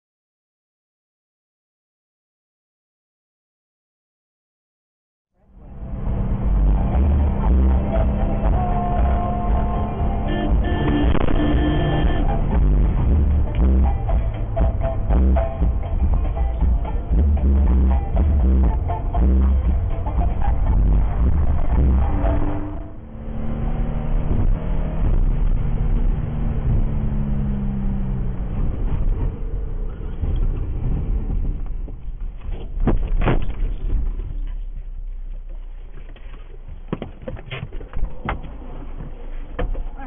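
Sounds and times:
droning tone: 5.4s - 31.5s
car road rumble from cabin: 5.4s - 40.0s.

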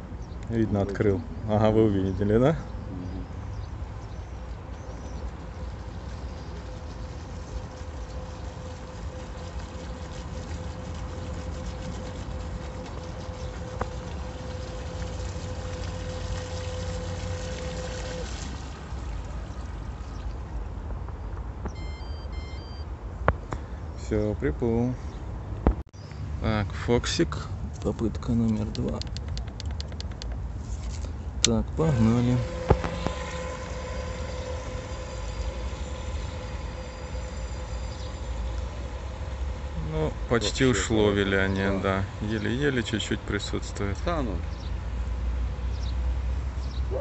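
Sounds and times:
wind and water noise: 0.0s - 47.0s
electric boat motors whining: 3.5s - 20.3s, 21.8s - 22.8s, 30.9s - 46.6s
short electronic beeps: 21.7s - 22.9s.

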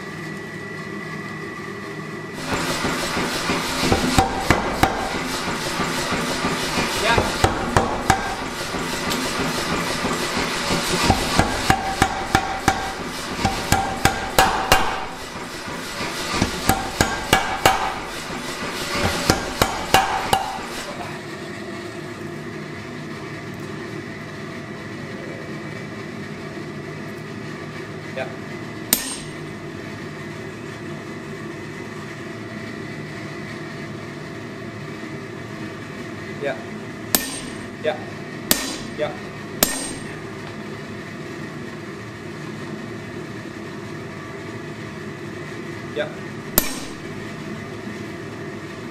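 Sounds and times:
machine hum: 0.0s - 48.9s
power hammer pounding steel: 2.4s - 21.0s, 28.9s - 29.5s, 37.1s - 37.8s, 38.5s - 40.3s, 46.5s - 47.3s.

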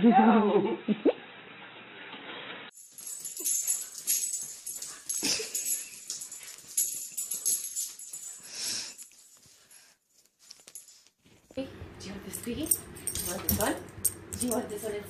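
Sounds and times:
collar jingling: 2.7s - 11.1s, 12.2s - 15.0s.

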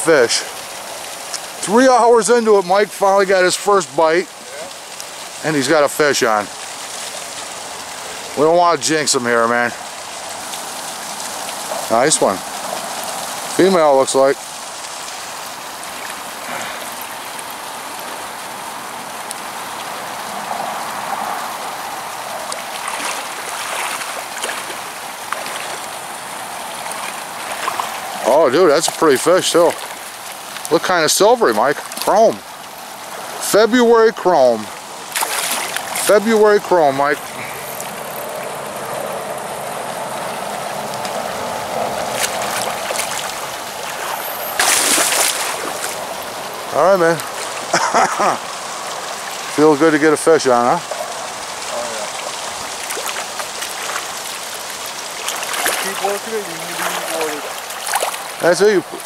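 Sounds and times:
creek water flowing: 0.0s - 59.0s
faint brief splashes: 43.9s - 46.0s.

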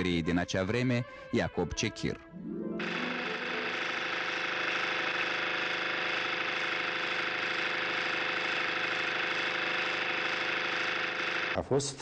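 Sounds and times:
machine whirring and rattling: 2.8s - 11.6s.

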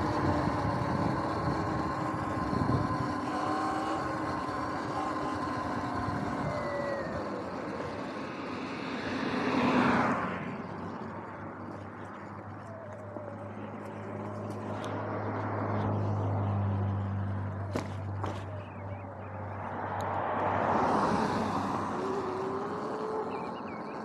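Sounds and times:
tyre and wind noise: 0.0s - 8.2s
electric motor low hum: 0.0s - 24.0s.

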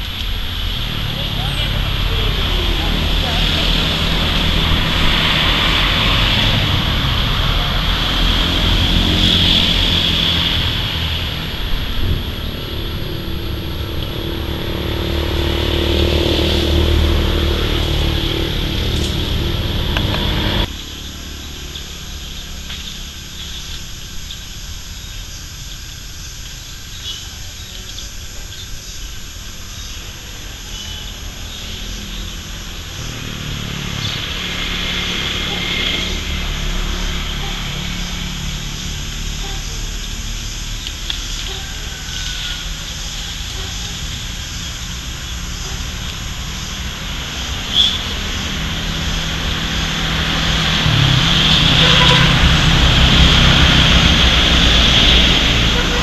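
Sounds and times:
low rumble: 0.0s - 22.6s, 50.1s - 55.6s.

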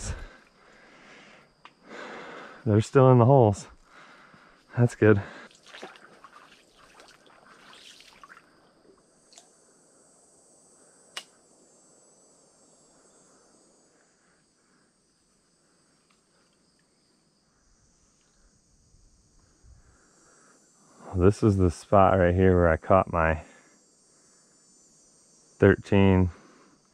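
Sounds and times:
high-pitched insect chorus: 0.0s - 26.9s
sharp click: 11.1s - 11.4s.

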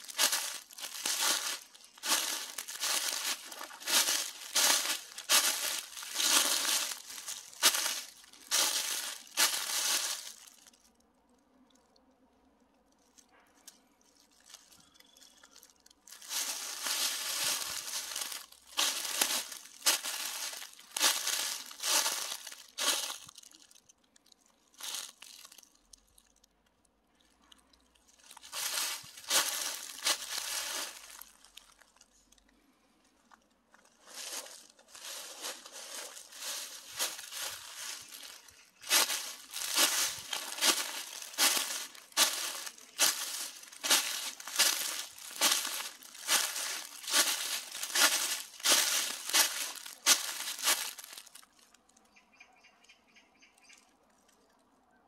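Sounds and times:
footsteps crunching dry leaves: 0.0s - 10.8s, 14.3s - 23.8s, 24.8s - 25.7s, 28.2s - 32.0s, 33.8s - 51.7s.

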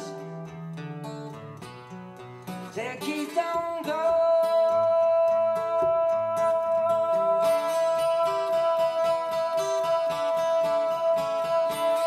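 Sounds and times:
acoustic guitar: 0.0s - 12.0s
person singing: 2.7s - 12.0s.

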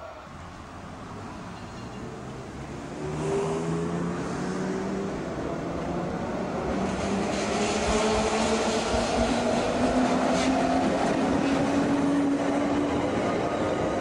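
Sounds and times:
tram whine: 0.0s - 14.0s
wheels clacking on rails: 6.6s - 14.0s.

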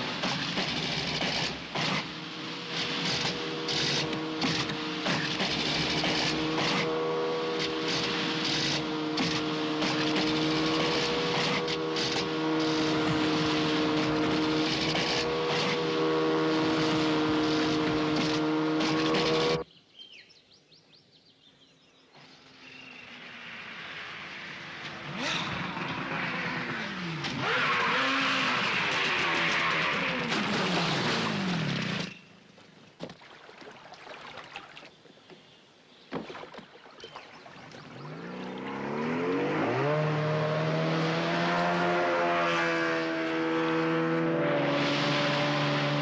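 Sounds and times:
outboard motors droning: 0.0s - 19.7s, 22.4s - 46.0s
hulls slapping water: 32.5s - 39.5s.

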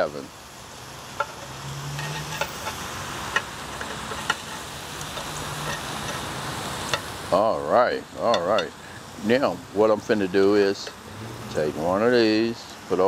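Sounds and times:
meat sizzling in a pan: 0.0s - 12.9s
metal tongs clicking on pan: 1.2s - 6.3s, 6.9s - 7.1s.

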